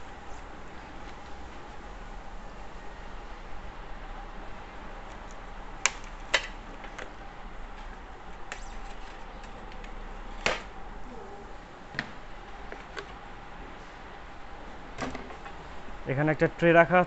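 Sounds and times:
faint steady hum: 0:00.0 - 0:17.0
cardboard snapping and clicking: 0:08.5 - 0:10.7.

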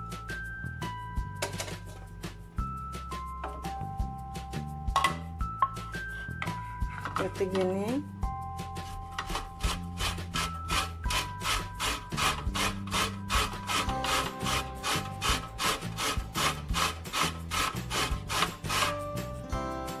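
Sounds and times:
lemon rasping on a grater: 0:09.2 - 0:19.0.

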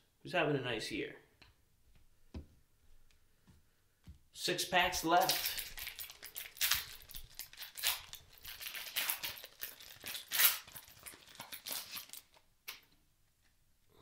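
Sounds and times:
foil wrapper tearing and crinkling: 0:05.2 - 0:12.5.

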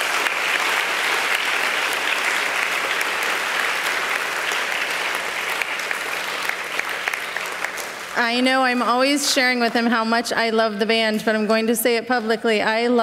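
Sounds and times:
crowd applause: 0:00.0 - 0:08.5.

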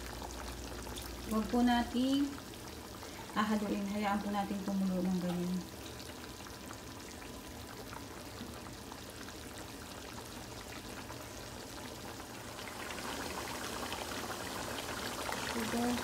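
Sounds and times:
sauce bubbling in a pot: 0:00.0 - 0:16.0.

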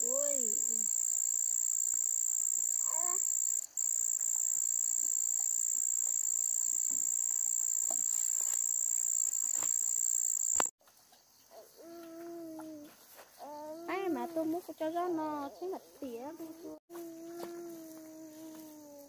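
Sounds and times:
high-pitched insect chorus: 0:00.0 - 0:10.7.

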